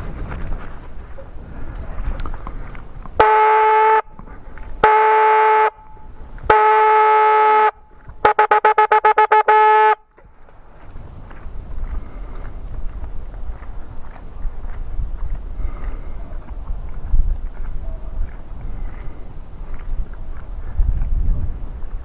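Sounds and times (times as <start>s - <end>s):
hunting horn blasts: 3.2s - 10.2s.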